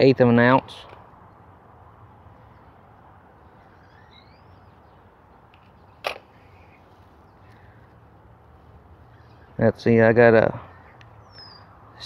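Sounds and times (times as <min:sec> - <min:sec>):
low background noise: 0:00.0 - 0:12.0
bird chirping faintly: 0:02.3 - 0:08.0, 0:09.0 - 0:12.0
sharp click: 0:05.5 - 0:06.3.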